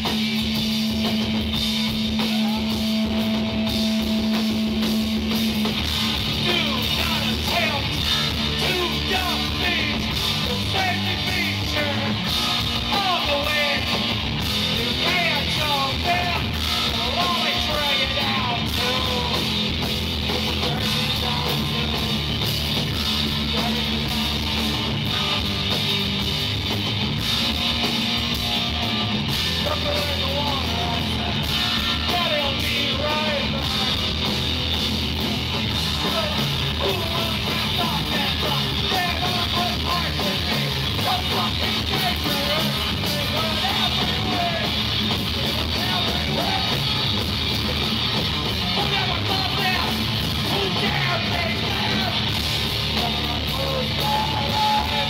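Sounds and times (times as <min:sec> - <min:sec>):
bass guitar: 0:00.0 - 0:55.0
drum kit: 0:00.0 - 0:55.0
electric guitars: 0:00.0 - 0:55.0
singer yelling into microphone: 0:06.3 - 0:14.0, 0:14.8 - 0:19.5, 0:29.4 - 0:34.0, 0:35.9 - 0:44.8, 0:48.5 - 0:55.0.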